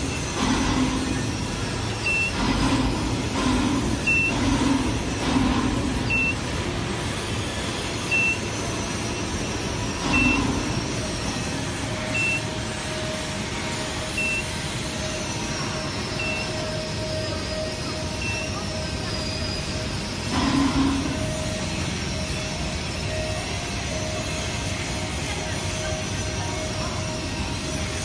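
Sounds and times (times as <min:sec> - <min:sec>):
industrial workshop noise: 0:00.0 - 0:28.0
short high electronic beep: 0:02.0 - 0:02.5, 0:04.0 - 0:04.5, 0:06.0 - 0:06.5, 0:08.0 - 0:10.7, 0:12.0 - 0:12.6, 0:14.1 - 0:14.6, 0:16.1 - 0:16.7.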